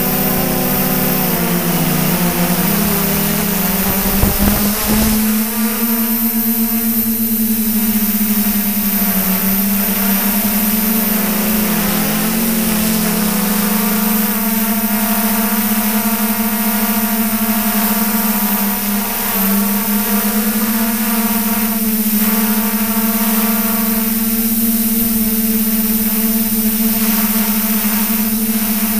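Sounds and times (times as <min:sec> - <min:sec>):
drone propellers humming: 0:00.0 - 0:06.0, 0:08.8 - 0:15.4.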